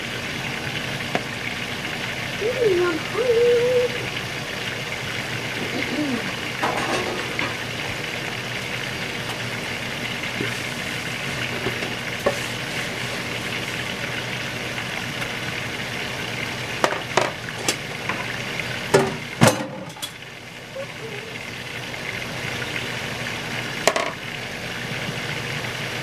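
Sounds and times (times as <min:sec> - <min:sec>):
chicken sizzling in hot oil: 0:00.0 - 0:26.0.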